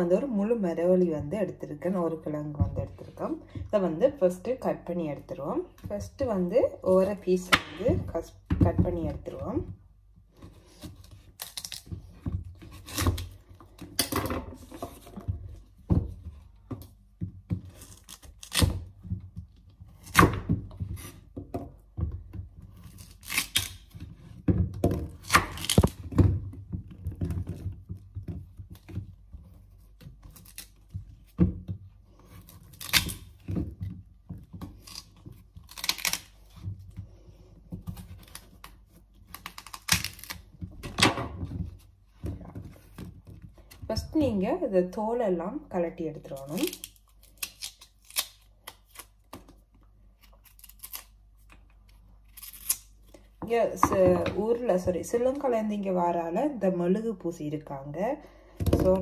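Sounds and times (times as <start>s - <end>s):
root tearing and cracking: 11.0s - 12.0s, 17.8s - 18.7s, 22.8s - 24.0s, 25.2s - 26.1s, 32.4s - 33.4s, 34.7s - 36.6s, 38.0s - 41.0s, 46.4s - 49.3s, 50.2s - 51.5s, 52.2s - 52.9s.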